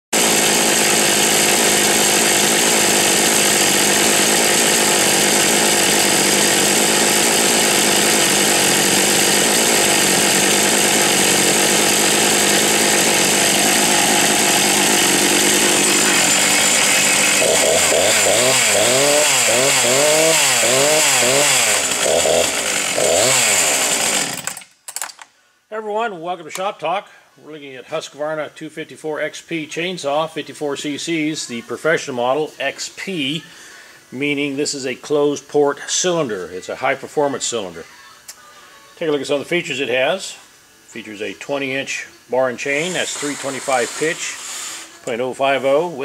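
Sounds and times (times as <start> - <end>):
chainsaw revving: 0.2 - 24.7, 42.6 - 45.0.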